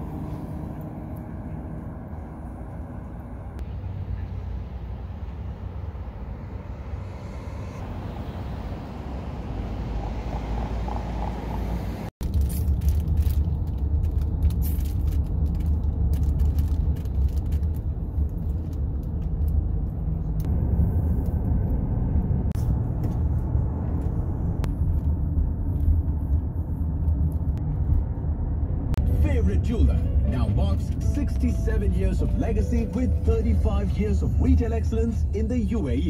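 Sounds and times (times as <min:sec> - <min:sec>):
car engine and road noise: 0:00.0 - 0:36.0.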